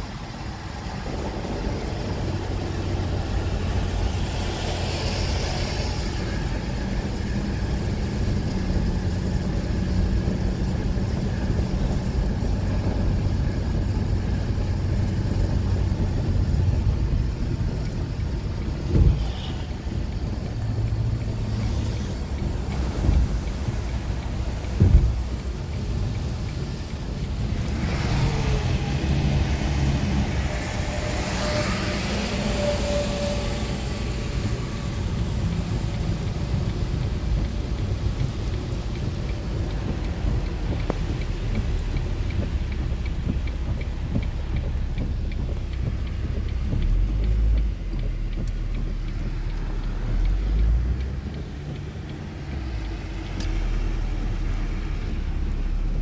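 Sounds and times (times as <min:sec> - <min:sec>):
low road rumble: 0:00.0 - 0:56.0
rain and tyre spray hiss: 0:00.0 - 0:56.0
low thumps: 0:22.3 - 0:25.7.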